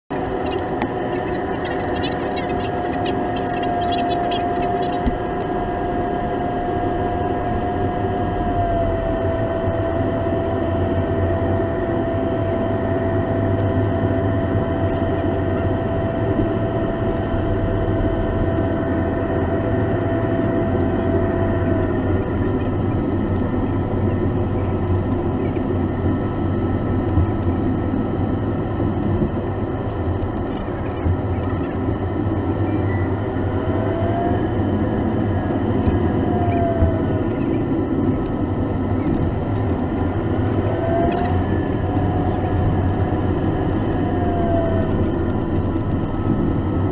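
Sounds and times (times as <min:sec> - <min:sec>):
jet engine whine: 0:00.0 - 0:46.9
aircraft cabin rumble: 0:13.1 - 0:46.9.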